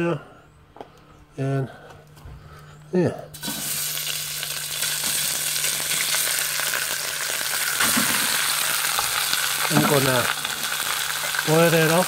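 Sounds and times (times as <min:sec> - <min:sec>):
meat sizzling in a wok: 0:03.4 - 0:12.0.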